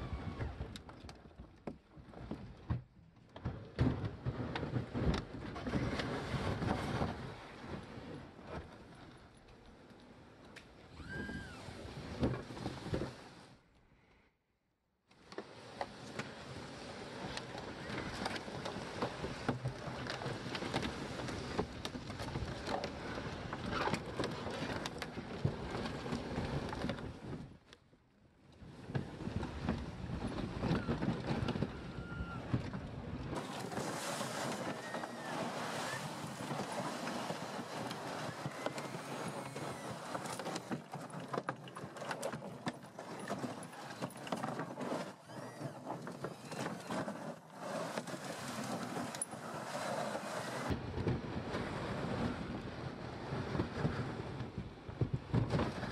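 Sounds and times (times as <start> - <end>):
wind rumble on microphone: 3.5 - 9.1, 28.6 - 40.7, 44.9 - 55.9
tracked robot rattling and scraping: 33.4 - 50.7.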